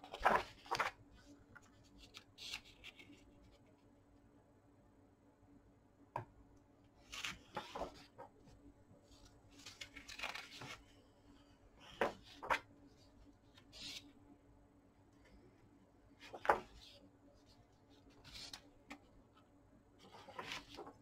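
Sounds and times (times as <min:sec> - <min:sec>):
book pages turning: 0:00.0 - 0:03.6, 0:07.0 - 0:08.3, 0:09.1 - 0:11.0, 0:11.8 - 0:12.7, 0:16.2 - 0:17.0, 0:17.9 - 0:19.1, 0:20.0 - 0:21.0.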